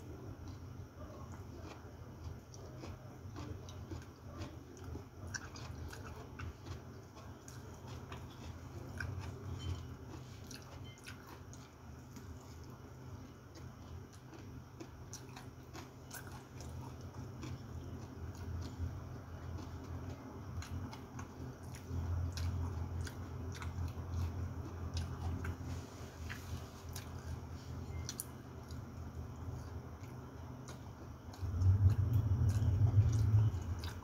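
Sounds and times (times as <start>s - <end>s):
person chewing and biting: 0.1s - 34.0s
low hum: 15.9s - 34.0s.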